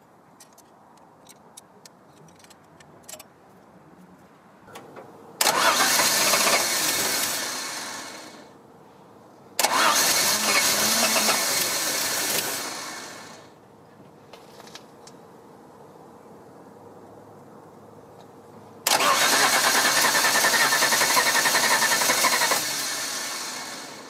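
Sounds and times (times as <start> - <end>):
car engine starting: 5.4 - 8.5, 9.6 - 13.5, 18.8 - 24.0.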